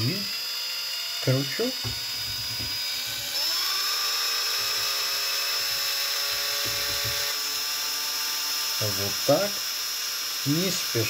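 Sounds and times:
electric motor whining: 0.0 - 11.0
low knocks: 1.8 - 2.9, 5.7 - 7.3.

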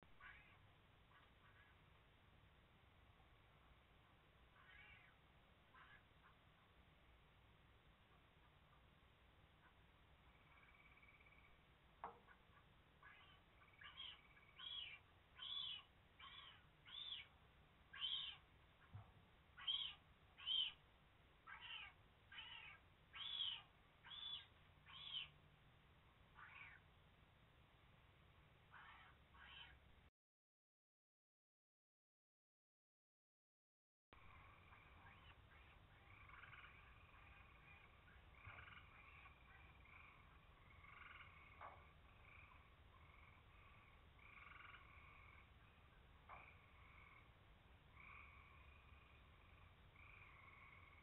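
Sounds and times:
frogs trilling: 9.6 - 18.5, 21.5 - 25.4, 26.4 - 26.9, 34.3 - 51.0.

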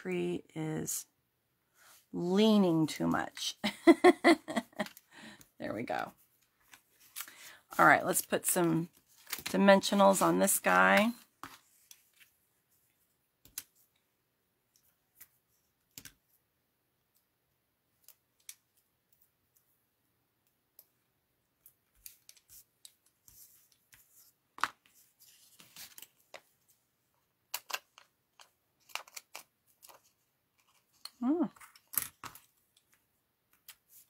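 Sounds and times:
paper rustling: 8.2 - 10.3.

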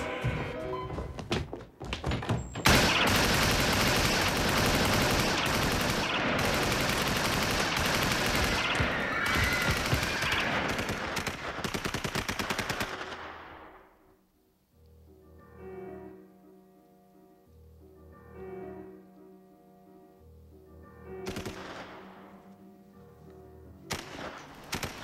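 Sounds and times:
rapid machine gun fire: 2.7 - 9.0, 9.6 - 13.3.

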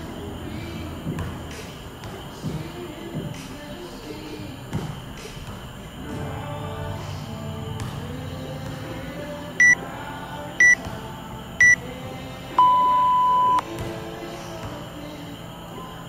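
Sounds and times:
long low beep: 9.6 - 9.8, 10.6 - 10.8, 11.6 - 11.8, 12.6 - 13.6
short high beeps: 10.6 - 10.8, 12.6 - 13.6.

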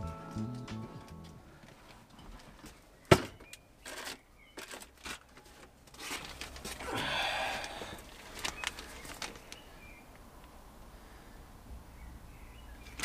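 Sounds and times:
plastic bags rustling: 3.8 - 9.8.

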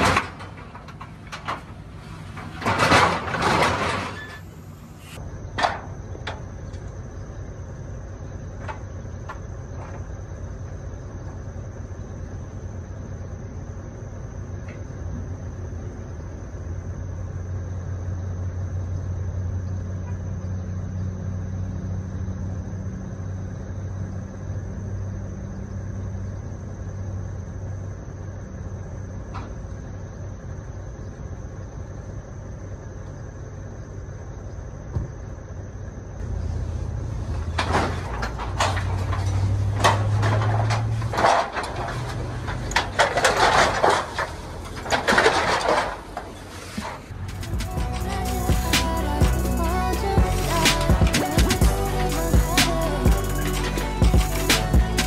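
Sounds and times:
metal knocks and rattles: 0.0 - 4.4, 37.3 - 46.4
truck engine idling: 0.0 - 55.0.

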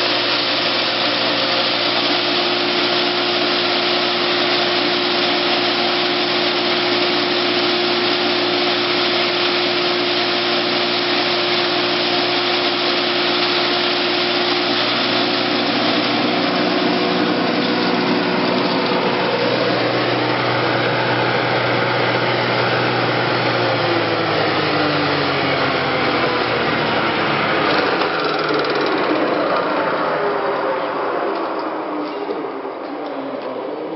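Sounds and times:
hammer mill whirring hum: 0.0 - 33.9.

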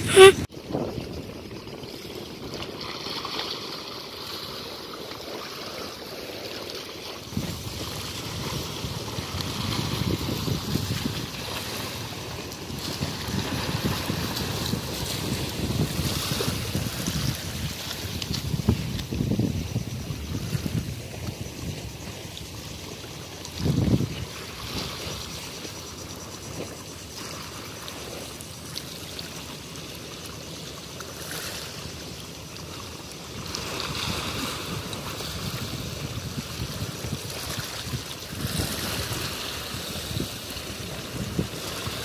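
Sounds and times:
wind on microphone: 0.0 - 2.8, 7.2 - 27.3, 33.3 - 42.0
waves splashing against wall: 2.5 - 19.3.

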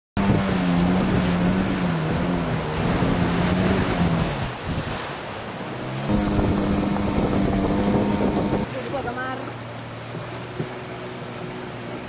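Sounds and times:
rushing water: 0.2 - 12.0
small boat motor running: 0.2 - 12.0
wind: 0.2 - 12.0.

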